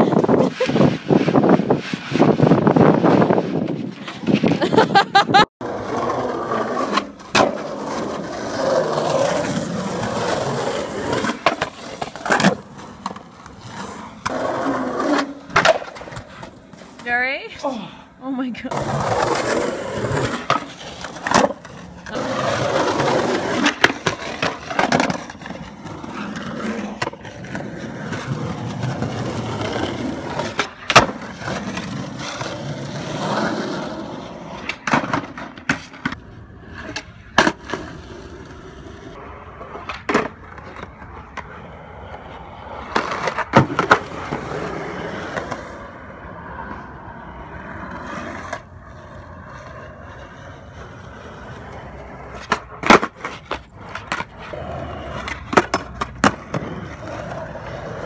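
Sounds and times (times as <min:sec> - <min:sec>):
skateboard wheels rolling on concrete: 0:00.0 - 0:58.0
skateboard clacking on ground: 0:05.7 - 0:17.2, 0:18.7 - 0:37.9, 0:39.5 - 0:46.0, 0:49.4 - 0:58.0.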